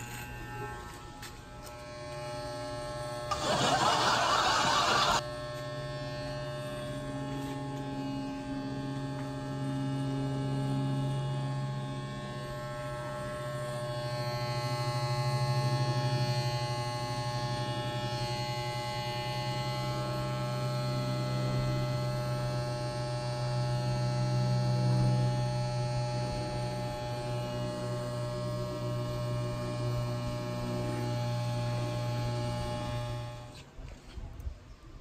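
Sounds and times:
hair clipper buzzing: 0.0s - 8.5s, 12.5s - 33.6s
loud noisy sound: 3.3s - 5.2s.

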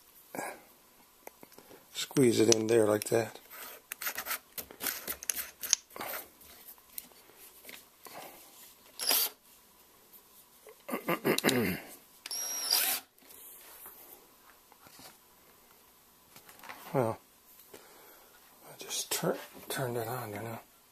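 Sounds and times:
drill chuck clicking and rattling: 9.0s - 9.3s
drill motor whine: 12.3s - 13.0s.

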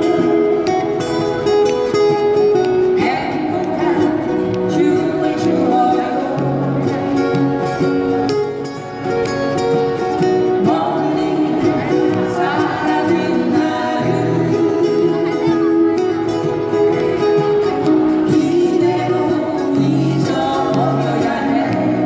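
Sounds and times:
acoustic guitars strumming: 0.0s - 22.0s
person singing: 2.8s - 7.0s, 10.2s - 15.9s, 17.9s - 22.0s.

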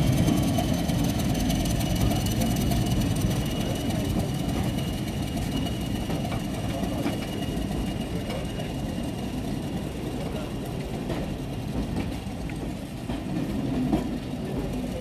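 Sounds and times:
train wheels rumbling on track: 0.0s - 15.0s
light clicks of wheels: 10.2s - 15.0s.

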